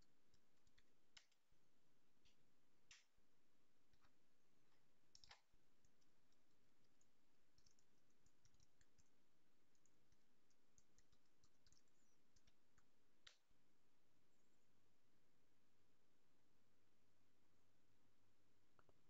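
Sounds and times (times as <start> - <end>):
keyboard typing: 5.1 - 13.4.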